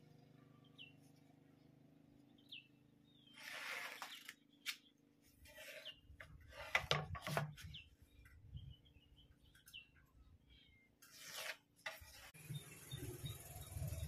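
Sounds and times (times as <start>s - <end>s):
metal scraping along board: 3.3s - 4.3s, 5.4s - 7.8s, 11.0s - 12.4s.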